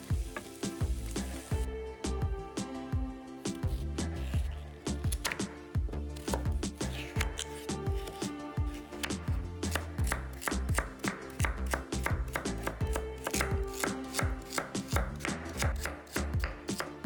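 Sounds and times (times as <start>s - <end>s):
background music: 0.0s - 17.0s
knife chopping on cutting board: 3.7s - 5.6s, 6.2s - 17.0s.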